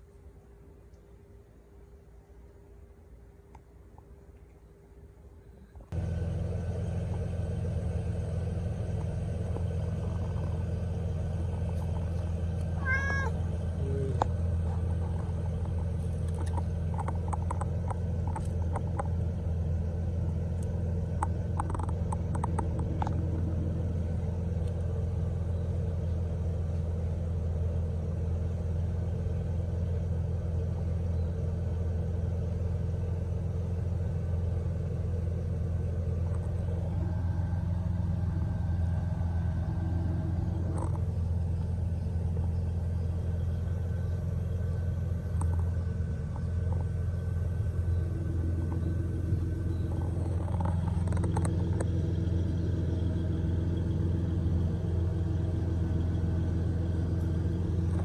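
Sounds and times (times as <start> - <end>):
steady low rumble: 0.0 - 58.0
kitten meowing: 12.8 - 14.2.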